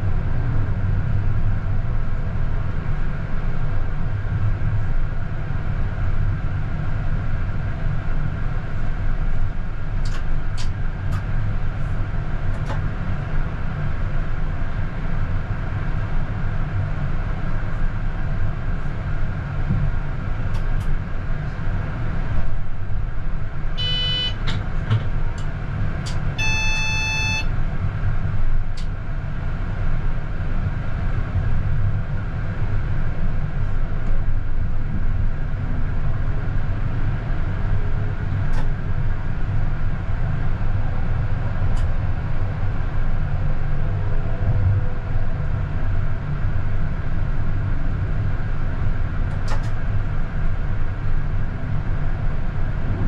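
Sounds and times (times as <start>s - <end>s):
tram rumbling on rails: 0.0s - 53.0s
short electronic beep: 23.8s - 24.4s, 26.4s - 27.5s
steady electronic tone: 26.4s - 27.5s.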